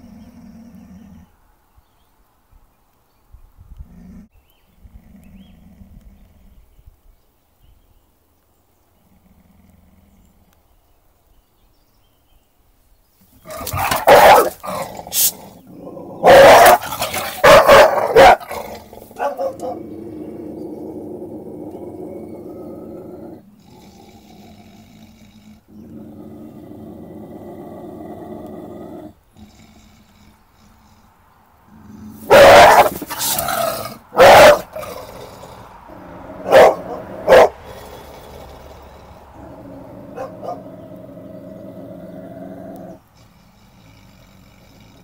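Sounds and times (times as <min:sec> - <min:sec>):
dog growling: 0:00.0 - 0:01.4, 0:13.3 - 0:45.0
dog barking and snarling: 0:13.3 - 0:45.0.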